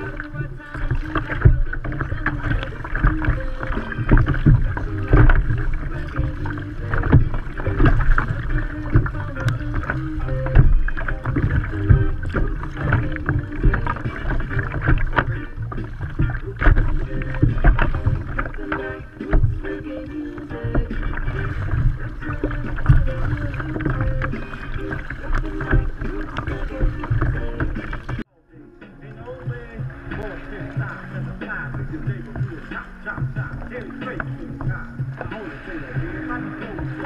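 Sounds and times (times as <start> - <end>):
water slapping against kayak hull: 0.0 - 28.3, 29.2 - 37.0
paddle strokes: 0.0 - 37.0
low rumble: 20.4 - 37.0.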